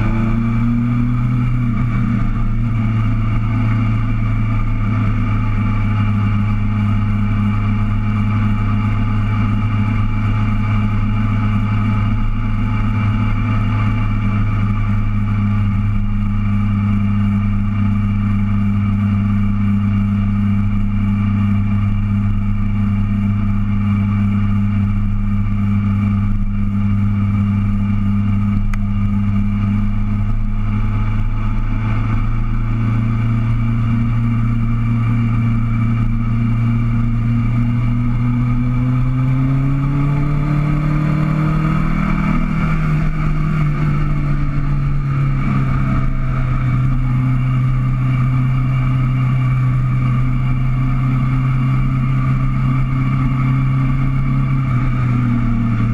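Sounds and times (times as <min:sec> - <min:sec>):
motorcycle engine cruising: 0:00.0 - 0:55.9.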